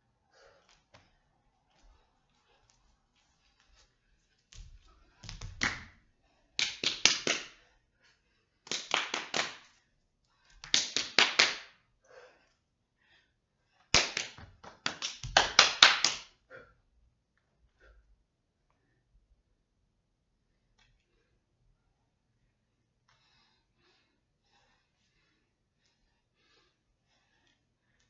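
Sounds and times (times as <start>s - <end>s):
body percussion slaps: 4.5s - 6.0s, 6.6s - 7.6s, 8.7s - 9.7s, 10.6s - 11.7s, 13.9s - 16.3s.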